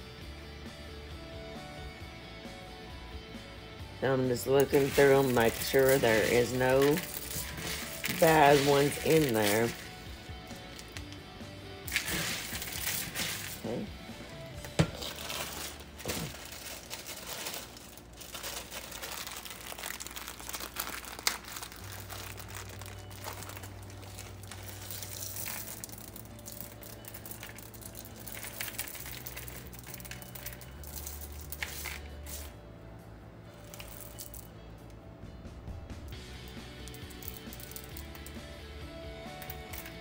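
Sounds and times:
dry beans sifted in colander: 4.0s - 11.1s, 11.9s - 14.3s, 14.9s - 32.5s, 33.6s - 34.4s, 36.2s - 38.4s
plastic bag crinkling: 4.5s - 11.2s, 11.9s - 32.5s.

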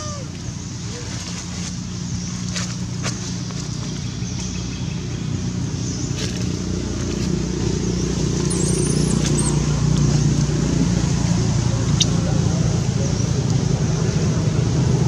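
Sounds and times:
engine running: 0.0s - 15.0s
thin high chirp: 8.4s - 9.6s.

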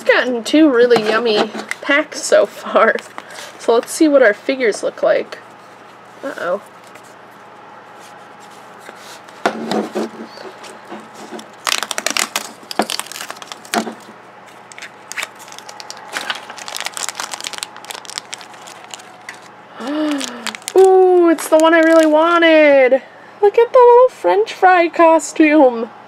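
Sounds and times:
plastic packaging crinkling: 10.6s - 22.4s
plastic wrapper rustling: 10.6s - 22.4s.

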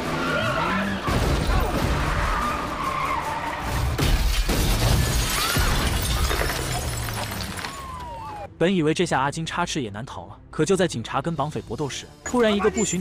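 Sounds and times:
tyres skidding: 0.0s - 4.0s
car crash: 3.7s - 8.2s
glass shattering: 4.0s - 8.0s.

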